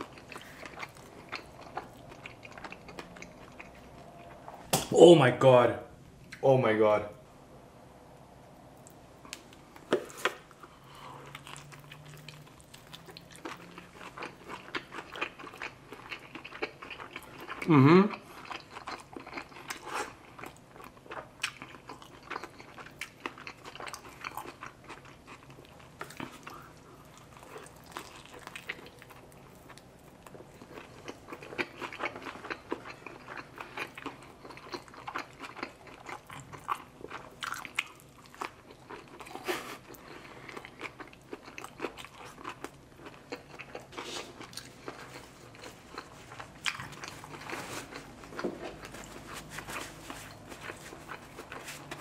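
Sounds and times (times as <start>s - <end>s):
biting and chewing: 18.4s - 52.0s.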